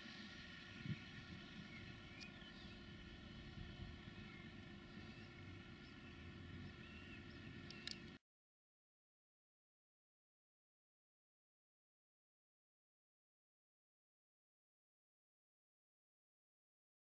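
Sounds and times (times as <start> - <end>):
distant tractor engine humming: 0.0 - 8.2
small birds chirping: 0.1 - 8.2.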